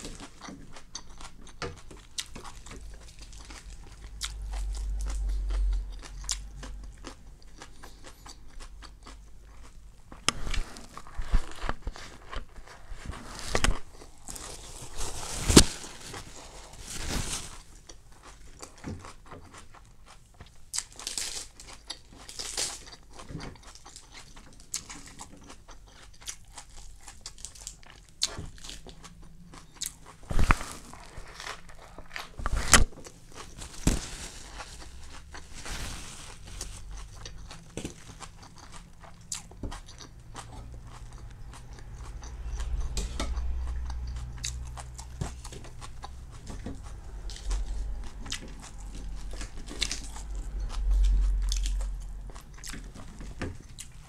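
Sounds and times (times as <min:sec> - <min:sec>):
crunching crispy pancake: 0:00.0 - 0:19.7, 0:20.8 - 0:29.0, 0:29.8 - 0:54.0
low hum: 0:40.1 - 0:53.2.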